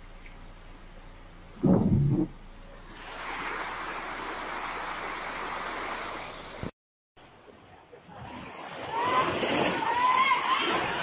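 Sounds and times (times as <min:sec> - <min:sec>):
floodwater rushing: 0:01.6 - 0:06.7, 0:07.3 - 0:11.0.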